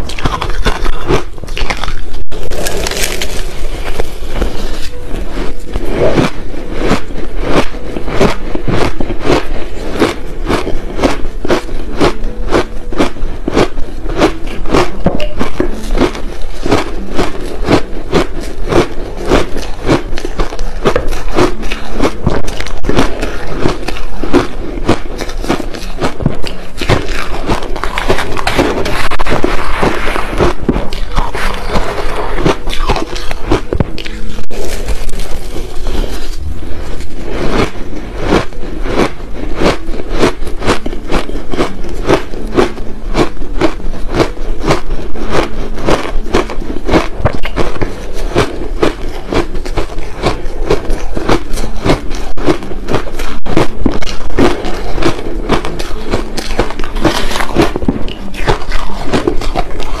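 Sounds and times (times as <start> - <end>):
crushed ice crunching: 0.1 - 12.7, 43.6 - 60.0
metal spoon scraping ice: 0.1 - 60.0.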